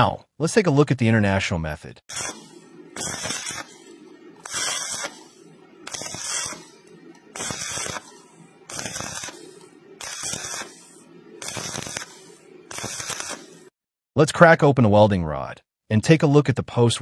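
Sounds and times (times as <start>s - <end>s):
steady low hum: 2.1s - 13.7s
welding arc crackling: 2.1s - 13.7s.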